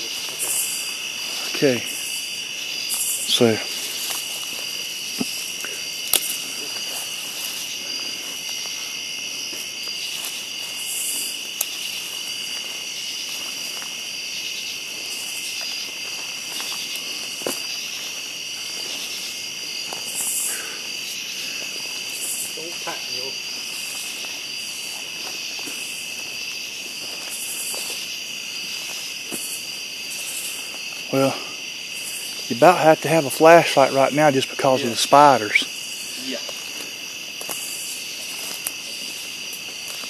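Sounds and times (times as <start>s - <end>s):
crickets trilling: 0.0s - 40.0s
high buzzing insect pulses: 0.0s - 40.0s
sharp snaps: 5.2s - 6.4s.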